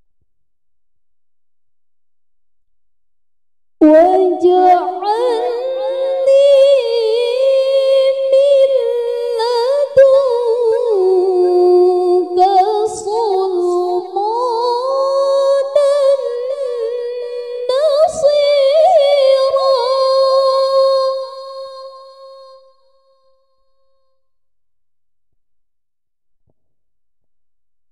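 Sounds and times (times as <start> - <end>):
woman reciting melodically: 3.8 - 22.6.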